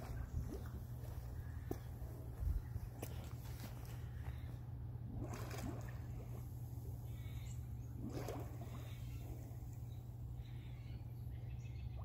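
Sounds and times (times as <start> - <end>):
steady low hum: 0.0 - 12.0
air bubbles gurgling underwater: 8.0 - 9.1.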